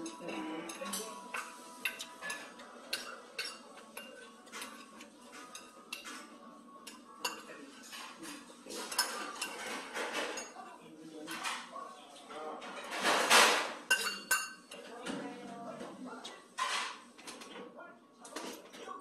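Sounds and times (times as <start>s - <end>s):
spoon clinking in metal bowl: 0.0s - 8.2s, 8.8s - 10.6s, 13.9s - 14.8s.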